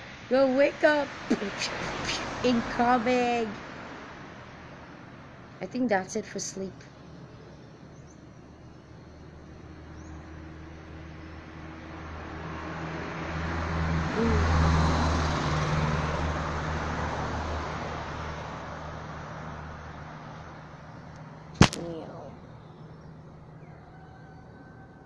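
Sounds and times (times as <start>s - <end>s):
vehicle passing close by: 0.0s - 5.5s, 9.6s - 21.5s
low engine hum: 0.0s - 25.0s
sharp double click: 21.6s - 21.9s.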